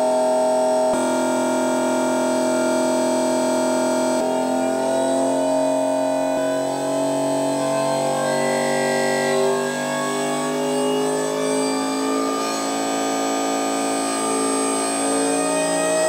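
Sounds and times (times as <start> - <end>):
hydraulic pump machine whine: 0.0 - 16.0.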